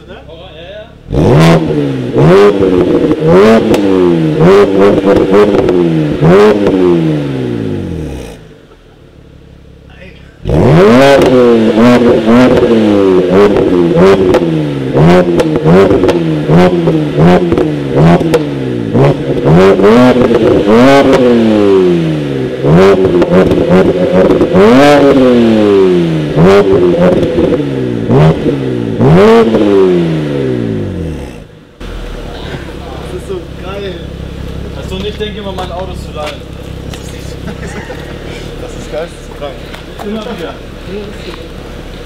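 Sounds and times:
car engine revving: 0.0 - 42.0
exhaust pops and cracks: 34.4 - 38.6, 39.2 - 40.6.

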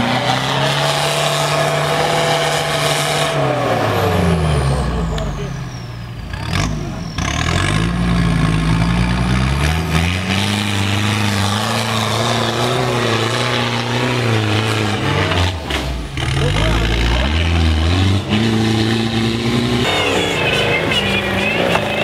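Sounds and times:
off-road vehicle engine revving hard: 0.0 - 22.0.

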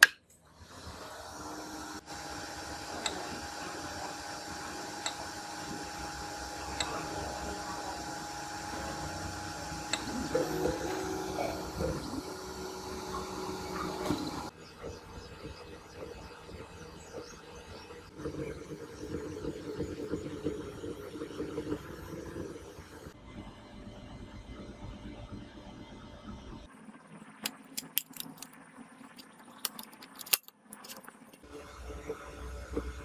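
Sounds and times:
printer fan hum: 0.6 - 23.2
stepper motors whining: 0.6 - 23.2.

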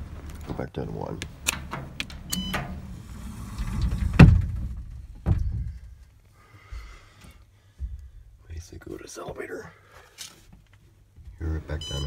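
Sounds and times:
dull thumps: 3.9 - 6.1.

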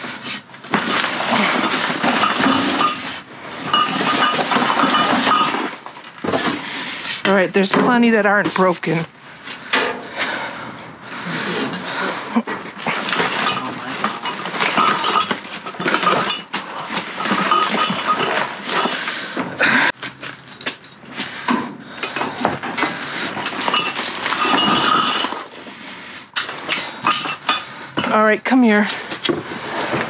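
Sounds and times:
trash rustling and clattering: 0.0 - 10.5, 11.4 - 30.0
glass bottles clinking: 0.6 - 6.6, 11.7 - 19.8, 20.4 - 25.5, 26.4 - 28.8.

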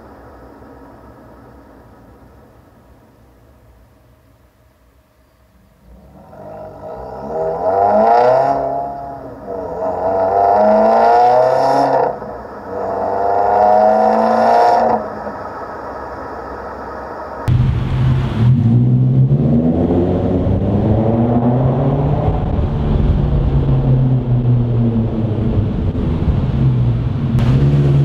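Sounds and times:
deeper engine sound: 5.6 - 28.0
car exhaust accelerating: 5.8 - 28.0.

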